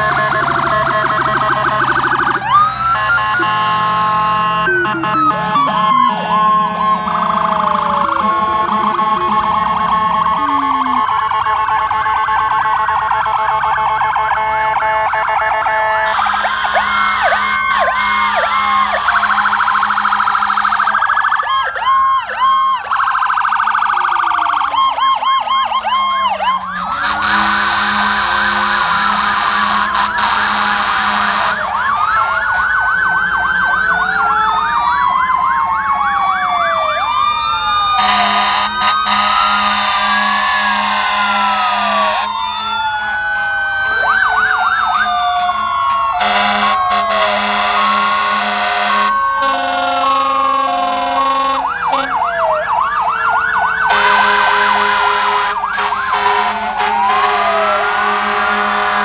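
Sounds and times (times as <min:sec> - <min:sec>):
fire engine sirens wailing: 0:00.0 - 0:59.0
long horn blasts: 0:02.8 - 0:07.2, 0:16.0 - 0:21.0, 0:26.6 - 0:32.8, 0:38.0 - 0:42.3, 0:46.2 - 0:52.2, 0:53.9 - 0:59.0.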